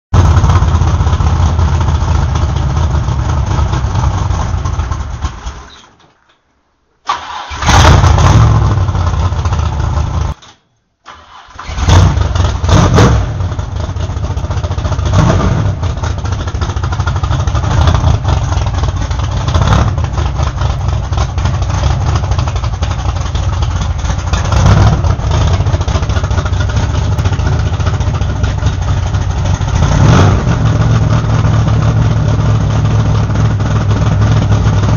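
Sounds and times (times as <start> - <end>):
race car engine running loud: 0.2 - 5.1, 12.3 - 34.9.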